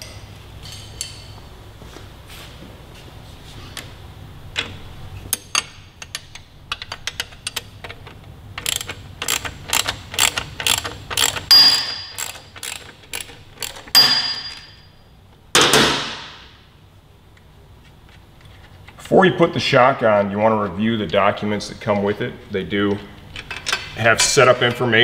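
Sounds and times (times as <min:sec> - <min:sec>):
ratchet wrench clicking: 0:08.6 - 0:14.6.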